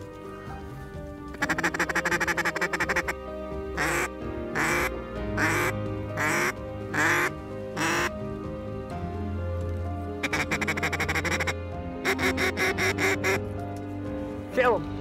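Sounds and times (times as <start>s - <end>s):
background music: 0.0s - 15.0s
duck quacking: 1.3s - 3.2s, 3.8s - 8.1s, 10.2s - 13.4s.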